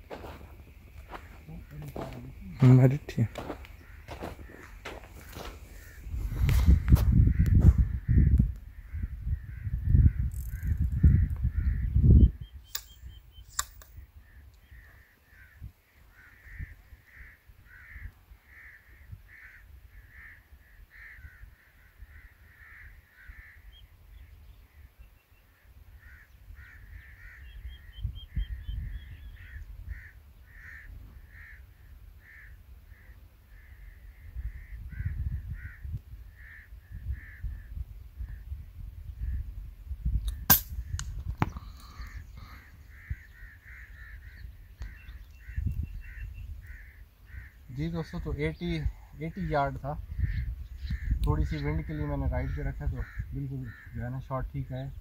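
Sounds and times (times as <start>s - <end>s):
bird calling: 0.0s - 37.6s, 41.4s - 54.1s
sharp clicks: 12.7s - 14.0s.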